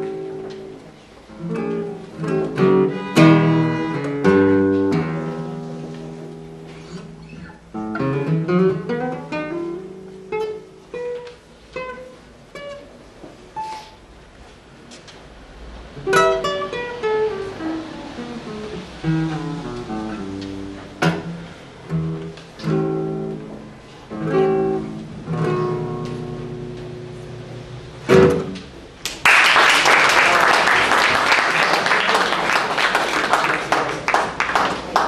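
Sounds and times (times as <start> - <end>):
acoustic guitar playing: 0.0 - 14.2, 15.4 - 29.0
audience applause: 29.1 - 35.0.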